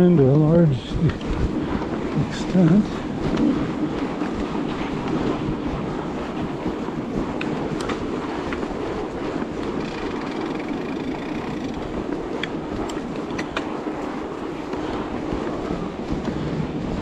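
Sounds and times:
tyres rolling on packed snow: 0.0 - 17.0.

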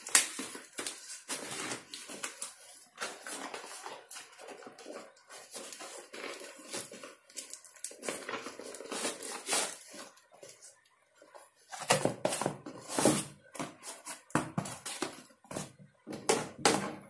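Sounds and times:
cardboard parcel being torn open: 0.0 - 10.2.

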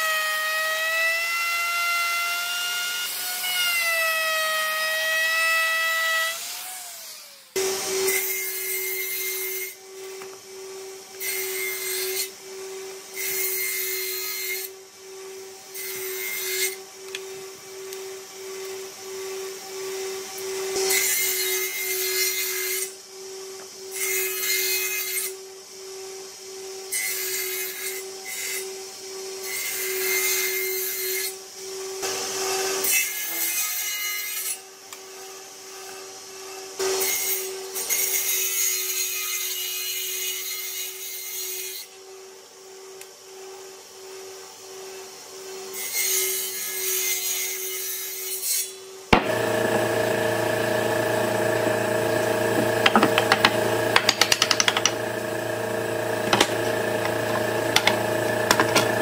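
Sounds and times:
table saw motor humming: 49.1 - 59.0
saw blade rasping through wood: 49.2 - 59.0.

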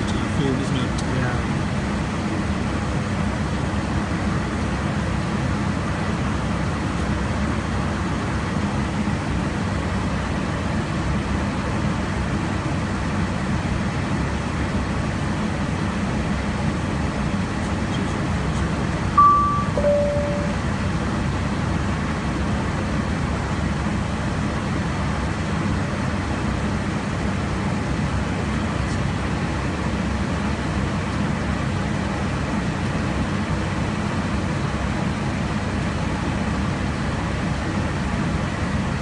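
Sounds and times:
cockpit airflow and engine drone: 0.0 - 39.0
two-tone chime: 19.2 - 20.6.

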